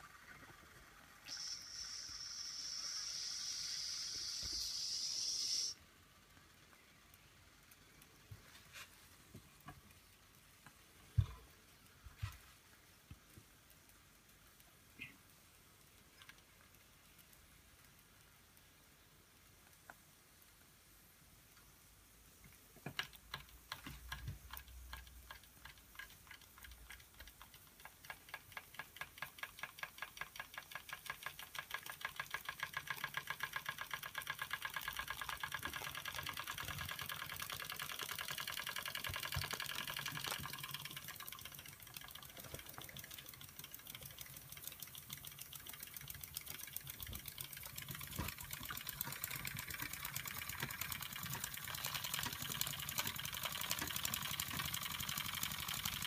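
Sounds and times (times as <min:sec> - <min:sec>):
flywheel flick: 0:00.0 - 0:21.8, 0:22.5 - 0:56.0
toy steam engine chuffing: 0:01.2 - 0:05.8, 0:24.5 - 0:56.0.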